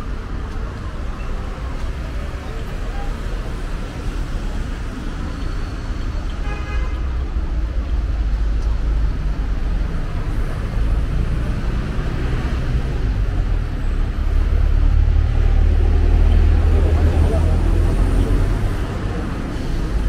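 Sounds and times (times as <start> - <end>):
passing cars rumbling: 7.1 - 20.0.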